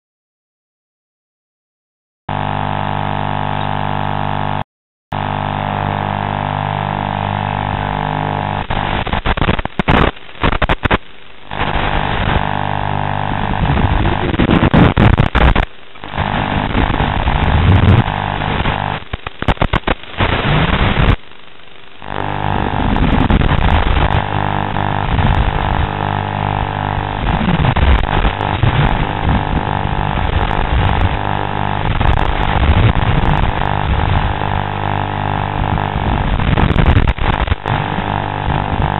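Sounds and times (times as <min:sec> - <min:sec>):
electrical buzz and hum: 0:02.3 - 0:38.9.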